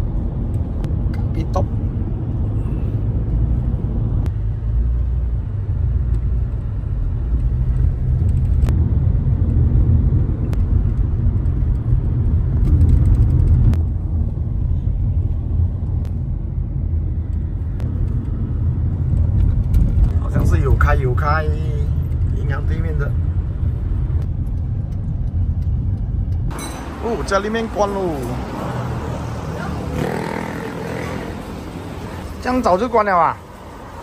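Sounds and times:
car engine and tyre rumble: 0.0s - 34.0s.

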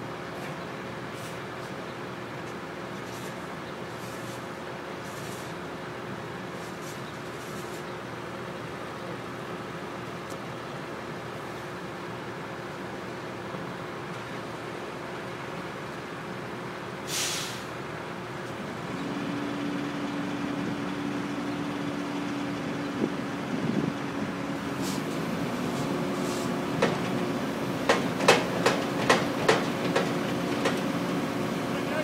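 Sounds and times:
short hiss: 17.1s - 17.7s, 24.8s - 25.2s, 25.8s - 26.6s
excavator running: 18.0s - 32.0s
sharp knocks: 27.8s - 30.9s.

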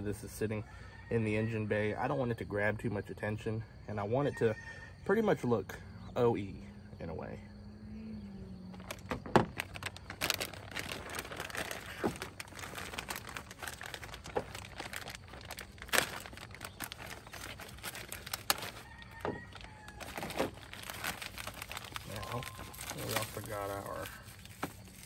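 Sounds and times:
plastic bags crinkling: 8.7s - 25.0s.

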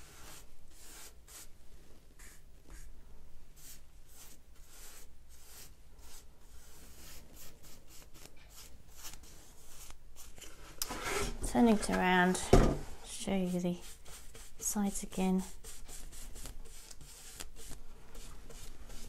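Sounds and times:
paintbrush brushing on wood: 0.0s - 1.5s, 2.2s - 2.9s, 3.6s - 10.4s, 13.1s - 19.0s.

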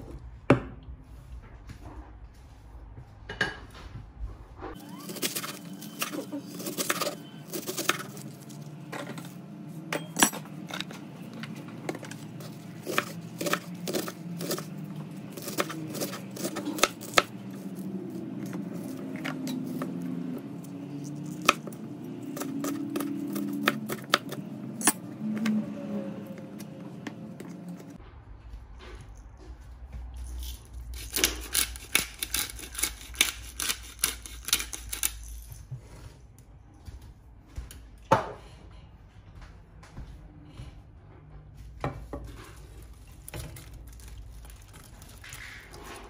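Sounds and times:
knife chopping on cutting board: 12.4s - 20.0s.

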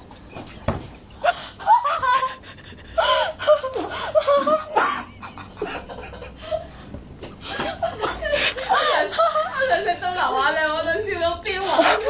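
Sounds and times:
person laughing: 1.2s - 6.8s, 7.4s - 9.9s.

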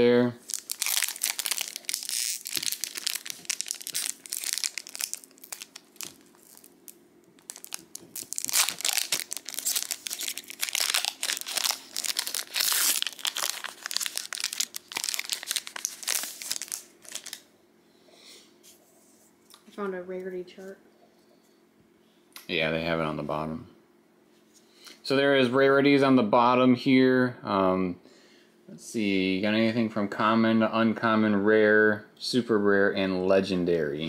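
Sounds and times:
card pack wrapper crinkling and tearing: 0.4s - 17.4s.

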